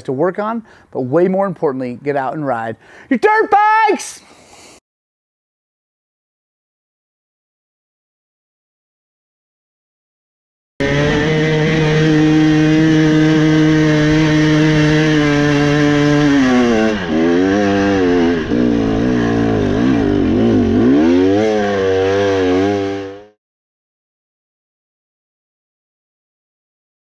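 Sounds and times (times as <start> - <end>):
dirt bike engine revving: 10.8 - 23.4.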